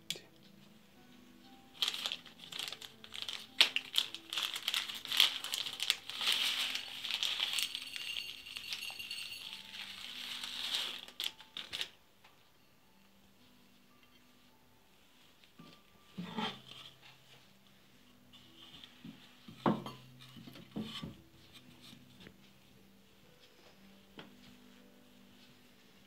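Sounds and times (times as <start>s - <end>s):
plastic bag crinkling: 1.8s - 12.0s
beads rattling onto glass plate: 3.4s - 11.2s.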